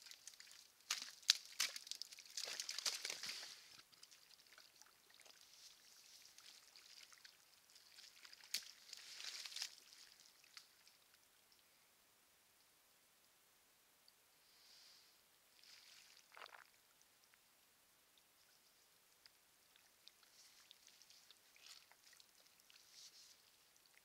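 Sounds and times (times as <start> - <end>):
mud and water sloshing: 0.0 - 11.1, 15.6 - 16.8, 19.7 - 23.6.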